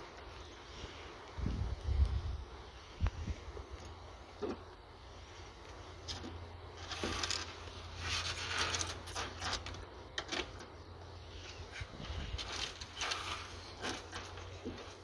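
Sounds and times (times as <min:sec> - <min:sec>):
lizards rustling and chewing: 0:05.2 - 0:15.0.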